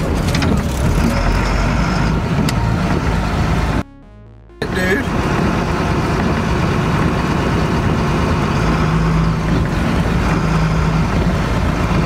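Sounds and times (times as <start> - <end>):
truck engine running: 0.0 - 12.0.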